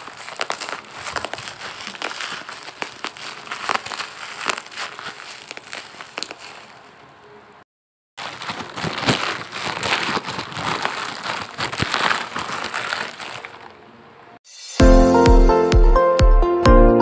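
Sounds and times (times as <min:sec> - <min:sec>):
plastic packaging crinkling: 0:00.0 - 0:07.3, 0:08.2 - 0:14.0.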